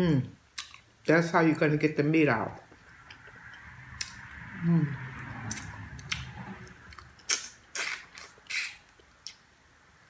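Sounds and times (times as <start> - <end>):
chewing: 5.5 - 9.4
wet sucking smacks: 7.0 - 9.4.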